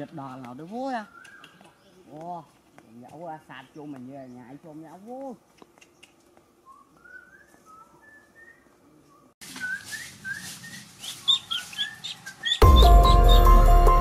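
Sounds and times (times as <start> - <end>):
birds chirping: 0.0 - 13.8
loud music: 12.6 - 14.0.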